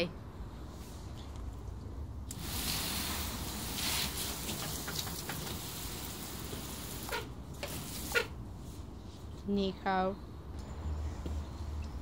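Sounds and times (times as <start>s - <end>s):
water hissing from hose nozzle: 2.3s - 8.4s.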